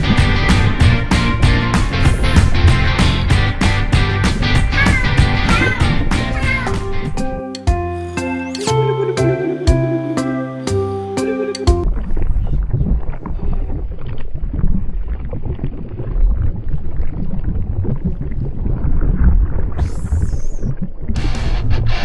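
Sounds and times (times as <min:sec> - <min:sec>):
deep rough lava rumbling: 0:00.0 - 0:07.2, 0:11.8 - 0:22.0.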